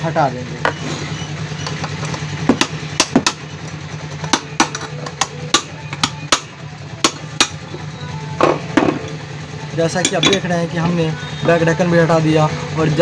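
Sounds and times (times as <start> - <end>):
hand tool clicks and knocks: 4.2 - 7.6.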